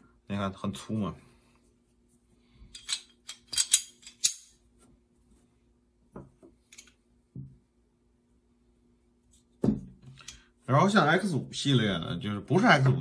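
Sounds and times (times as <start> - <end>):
sharp metal clicks of gun parts: 2.8 - 4.5.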